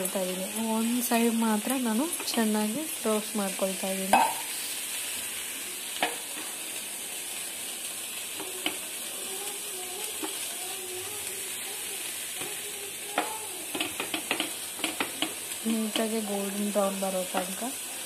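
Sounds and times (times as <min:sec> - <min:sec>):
bread frying sizzle: 0:00.0 - 0:18.0
slices tapping on pan: 0:04.1 - 0:04.4, 0:06.0 - 0:06.4, 0:08.4 - 0:08.8, 0:12.4 - 0:16.2.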